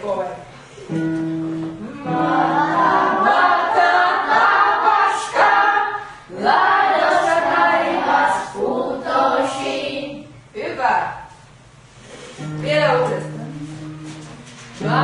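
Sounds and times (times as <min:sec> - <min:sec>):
group singing unaccompanied: 0:01.9 - 0:10.3, 0:13.4 - 0:15.0.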